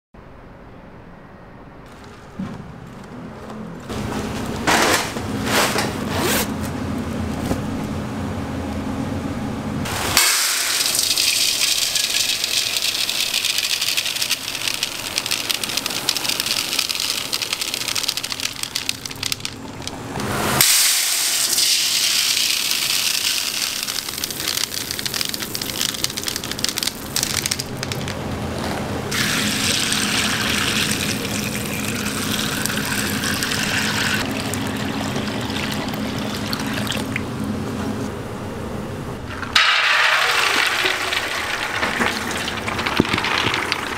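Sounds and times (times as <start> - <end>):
beans pouring into steel bowl: 10.2 - 20.0, 20.9 - 28.2, 39.6 - 43.9.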